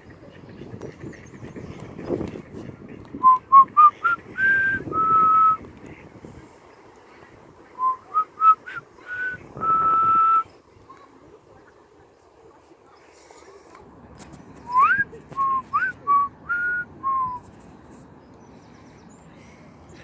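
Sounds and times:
person whistling: 3.2 - 5.6, 7.8 - 10.4, 14.7 - 17.5.

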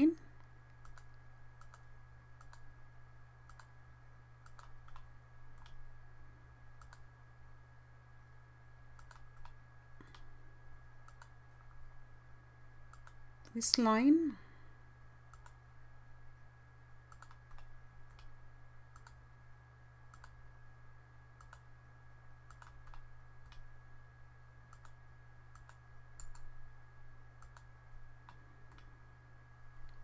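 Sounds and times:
low electrical hum: 0.0 - 30.0
computer mouse clicking: 0.4 - 2.7, 3.4 - 3.8, 4.4 - 5.8, 6.8 - 7.1, 8.9 - 10.3, 11.0 - 11.4, 12.9 - 13.8, 15.3 - 15.6, 17.1 - 19.2, 20.1 - 20.4, 21.4 - 21.7, 22.4 - 23.7, 24.7 - 26.5, 27.4 - 28.9.

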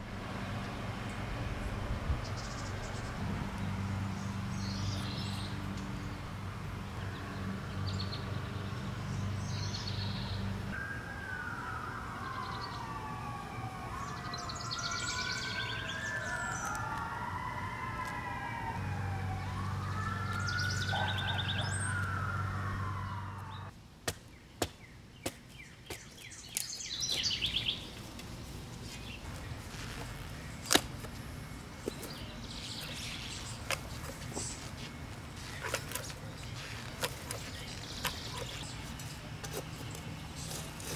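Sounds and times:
birds chirping: 0.0 - 28.2, 28.8 - 40.9
distant siren wailing: 9.4 - 23.7, 29.5 - 40.7.

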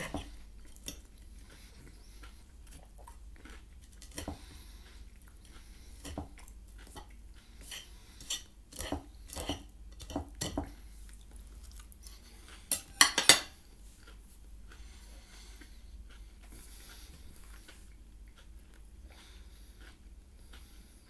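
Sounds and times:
faint chewing: 0.0 - 12.8, 13.5 - 21.0
cutlery clinking on a plate: 12.7 - 13.6.

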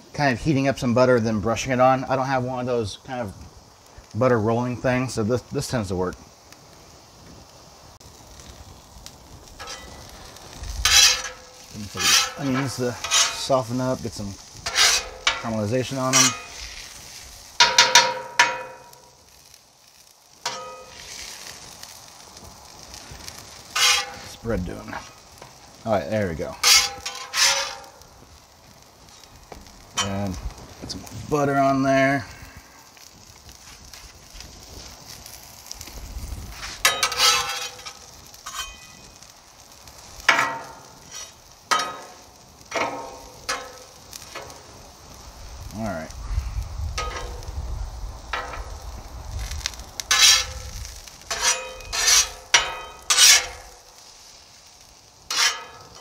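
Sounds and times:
onions sizzling: 0.0 - 56.0
metal spatula clanking on griddle: 9.6 - 10.1, 10.8 - 13.6, 14.6 - 16.7, 17.6 - 19.1, 20.4 - 21.3, 23.7 - 24.4, 26.6 - 28.0, 36.8 - 39.2, 40.2 - 44.6, 47.0 - 47.4, 48.3 - 48.7, 50.1 - 53.8, 55.3 - 56.0.

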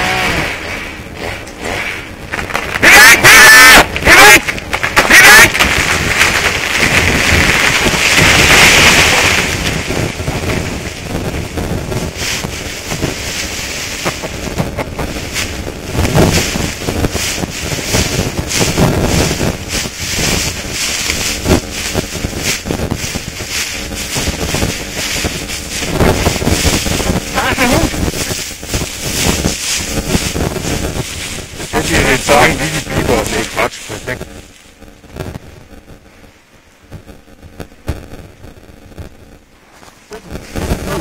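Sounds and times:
wind buffeting microphone: 5.5 - 34.4
footsteps through dry leaves: 12.0 - 14.5, 15.1 - 34.7.

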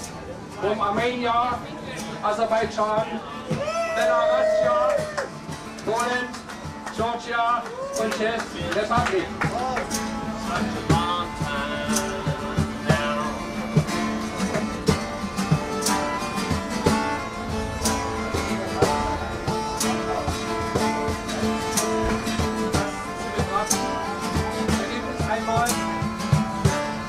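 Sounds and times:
strummed acoustic guitar music: 0.0 - 27.0.

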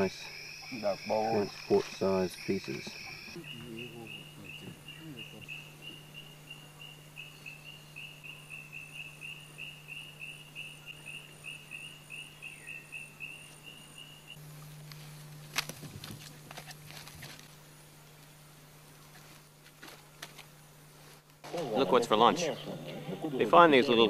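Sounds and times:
high insect trill: 0.0 - 24.0.

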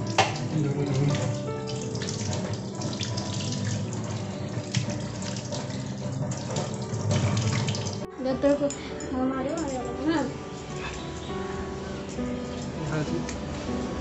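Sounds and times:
water splashing in a sink: 0.0 - 8.1.

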